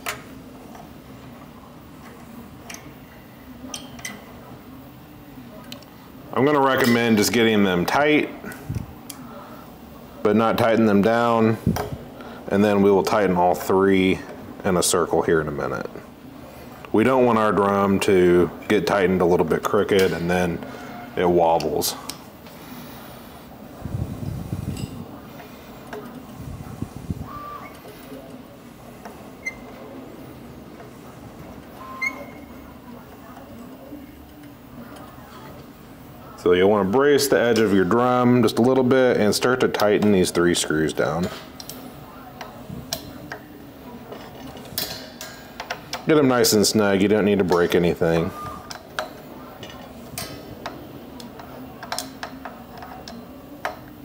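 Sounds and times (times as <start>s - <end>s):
metal on metal squeaks: 29.4s - 29.8s, 31.8s - 32.6s.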